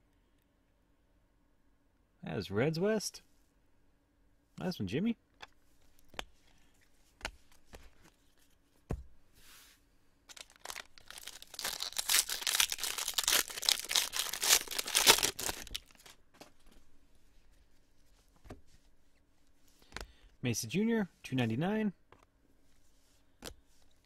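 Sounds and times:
foil wrapper tearing and crinkling: 10.3s - 16.2s.

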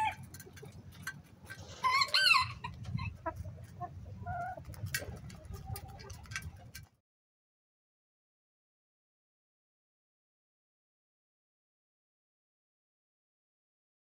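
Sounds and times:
hens clucking: 0.0s - 6.9s.

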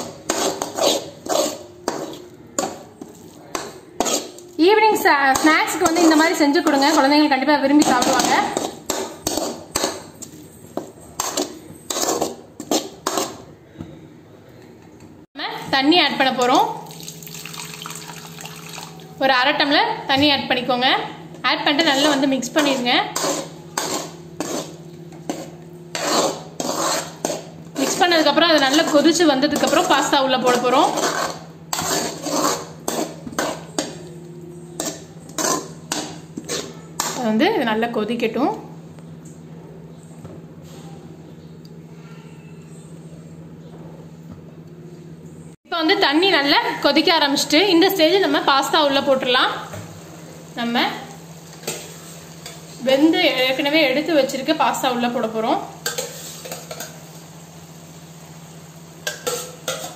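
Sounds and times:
metal spoon scraping metal pan: 0.0s - 13.5s, 21.7s - 37.4s, 55.8s - 57.0s, 59.0s - 59.9s.

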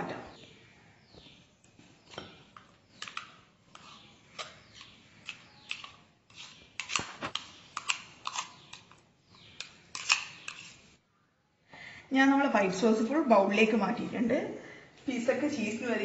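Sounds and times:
metal spoon scraping steel jar: 3.0s - 8.9s, 9.9s - 10.9s.

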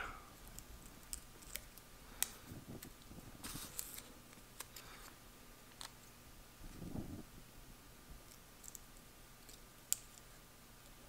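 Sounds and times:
small scissors snipping foil: 0.4s - 2.9s.

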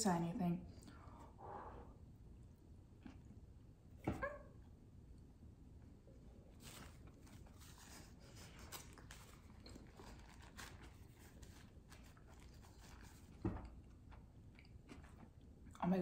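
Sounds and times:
chewing and mouth sounds: 12.0s - 15.8s.

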